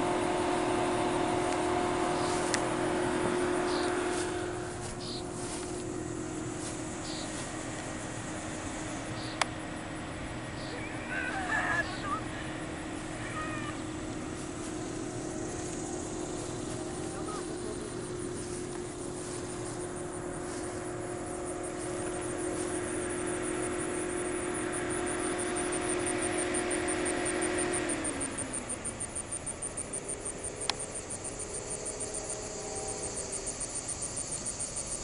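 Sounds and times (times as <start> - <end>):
insects chirping: 0.0 - 35.0
small airplane engine droning: 0.0 - 35.0
bird calls: 3.6 - 4.0, 4.9 - 5.4, 7.0 - 7.4, 9.1 - 9.5, 10.6 - 13.8.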